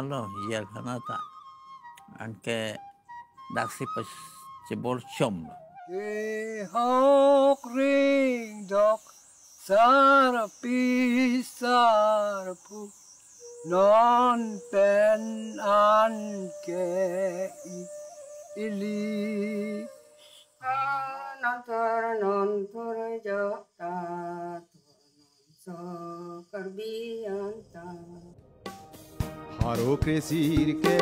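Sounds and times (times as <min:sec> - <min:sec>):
old person singing: 0:05.9 - 0:09.0, 0:09.6 - 0:12.9, 0:13.6 - 0:17.9, 0:18.6 - 0:24.6, 0:29.6 - 0:31.0.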